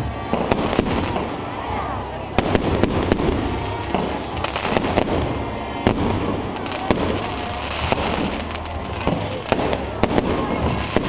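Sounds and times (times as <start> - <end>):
fireworks bangs: 0.0 - 11.0
fireworks hiss and rumble: 0.0 - 11.0.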